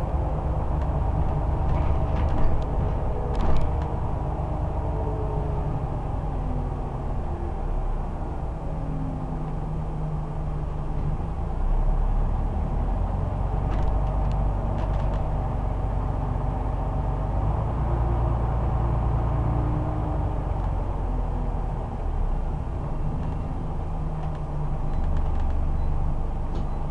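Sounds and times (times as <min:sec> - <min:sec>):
bus engine rumbling: 0:00.0 - 0:26.9
light rattles or clicks: 0:13.6 - 0:15.4, 0:24.2 - 0:25.9.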